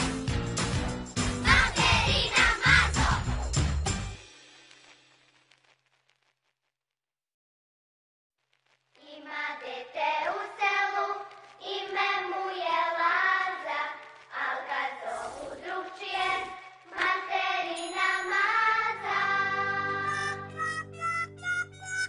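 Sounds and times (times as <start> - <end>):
song with singing voices: 1.2 - 3.5, 9.1 - 20.6.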